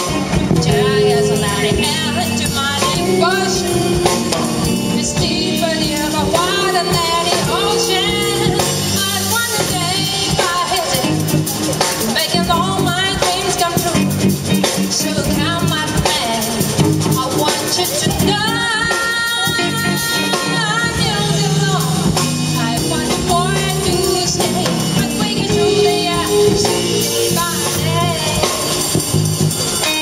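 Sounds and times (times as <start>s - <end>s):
woman singing jazz: 0.0s - 29.2s, 29.8s - 30.0s
drum kit: 0.0s - 30.0s
electric bass: 0.0s - 30.0s
electric guitar: 0.0s - 30.0s.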